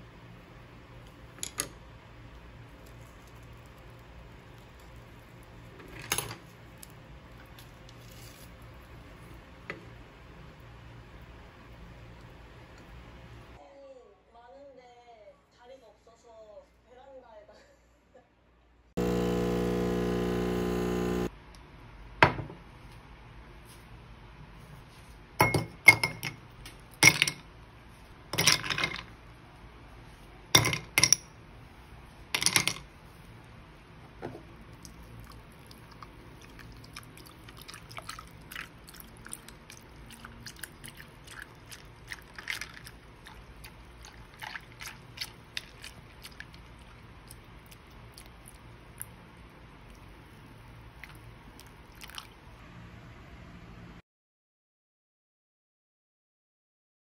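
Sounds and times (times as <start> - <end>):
electric appliance hum: 19.0 - 21.4
iced drink being stirred: 34.8 - 48.6, 51.0 - 52.4.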